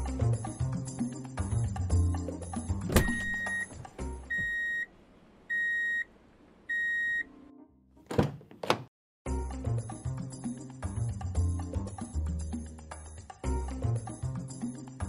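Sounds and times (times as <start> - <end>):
background music: 0.0 - 4.4, 9.3 - 15.0.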